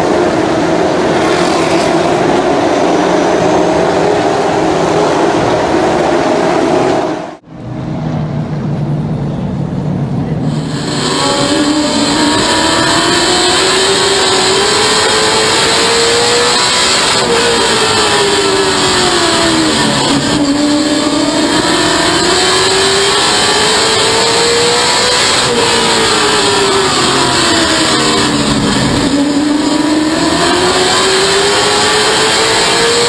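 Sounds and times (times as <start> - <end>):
race car engine revving: 0.0 - 8.6, 10.4 - 33.0.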